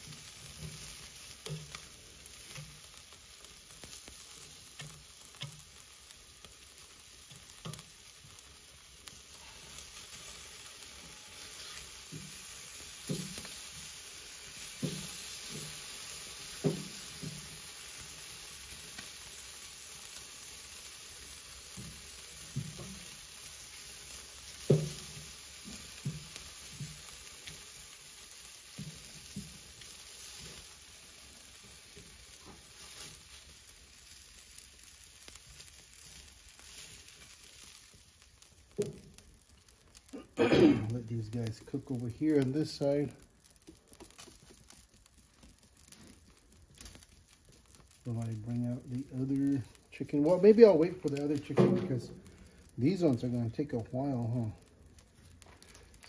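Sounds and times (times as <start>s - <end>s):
meat sizzling on grill: 0.0s - 56.0s.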